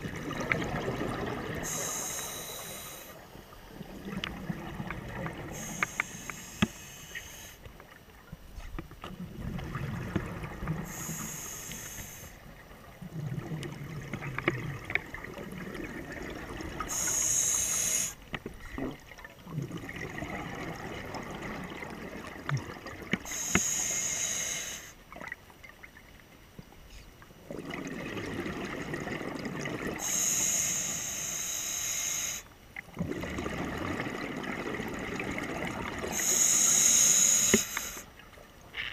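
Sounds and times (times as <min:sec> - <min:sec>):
rumble of exhaled bubbles: 0:00.0 - 0:01.8, 0:03.7 - 0:05.7, 0:09.0 - 0:11.1, 0:12.6 - 0:16.9, 0:18.6 - 0:23.1, 0:27.4 - 0:30.0, 0:32.8 - 0:36.2
regulator hissing on inhale: 0:01.6 - 0:03.6, 0:05.5 - 0:07.7, 0:10.8 - 0:12.5, 0:16.8 - 0:18.2, 0:23.2 - 0:25.0, 0:30.0 - 0:32.5, 0:36.1 - 0:38.1.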